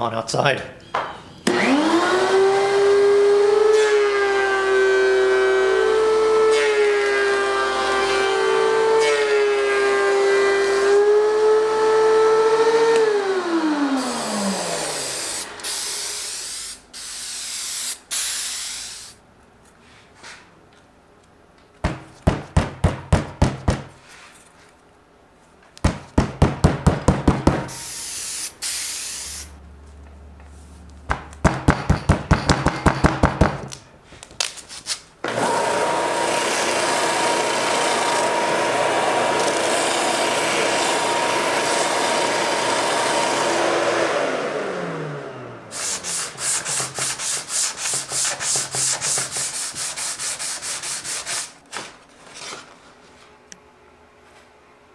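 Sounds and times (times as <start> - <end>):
sander whine: 1.4 - 17.3, 35.2 - 46.6
planer motor spinning down: 1.5 - 16.1, 35.2 - 45.7
belt sander sanding: 35.3 - 44.0, 45.7 - 51.6.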